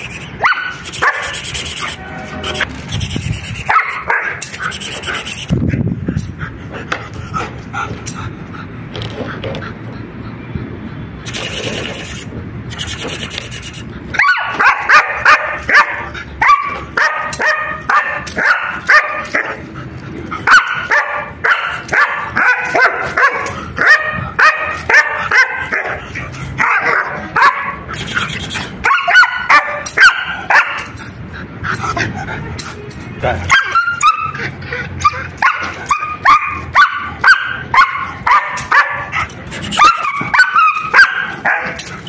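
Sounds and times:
dog barking rapidly: 0:00.4 - 0:02.0, 0:03.6 - 0:05.4, 0:14.2 - 0:19.6, 0:20.4 - 0:31.0, 0:33.4 - 0:34.4, 0:35.0 - 0:41.8.

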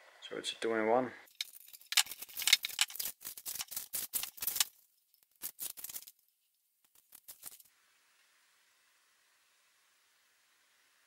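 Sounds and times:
masking tape peeling and tearing: 0:01.8 - 0:06.2, 0:06.9 - 0:07.7.

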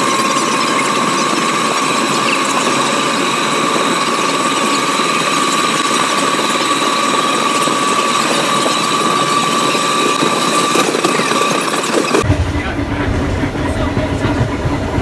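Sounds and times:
high-pitched whine: 0:00.0 - 0:15.0
train wheels rushing on rail: 0:00.0 - 0:15.0.

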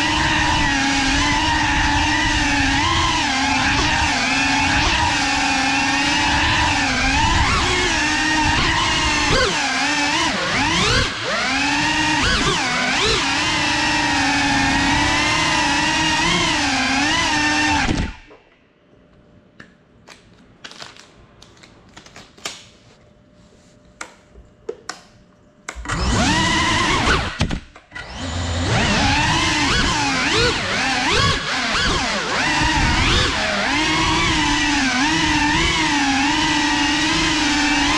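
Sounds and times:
drone motors whining: 0:00.0 - 0:18.3, 0:25.8 - 0:37.9.

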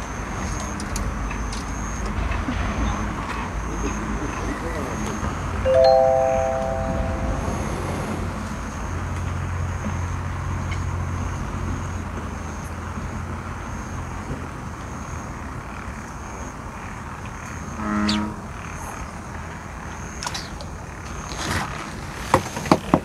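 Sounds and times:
thin high tone: 0:05.6 - 0:08.7.

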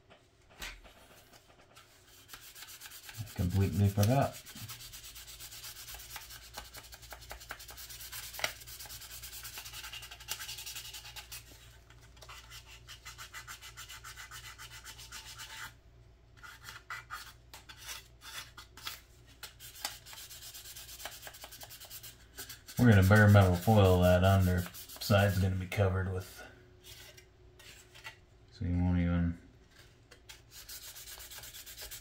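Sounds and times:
sanding pad rubbing plastic: 0:02.2 - 0:11.4, 0:19.6 - 0:25.5, 0:30.5 - 0:32.0.

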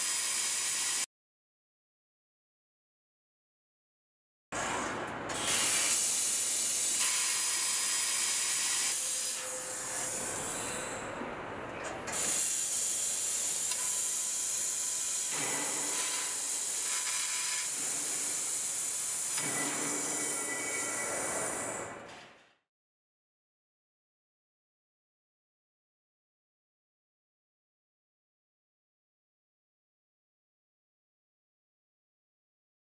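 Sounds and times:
laser cutter gas jet hissing: 0:05.4 - 0:10.9, 0:12.2 - 0:21.9.

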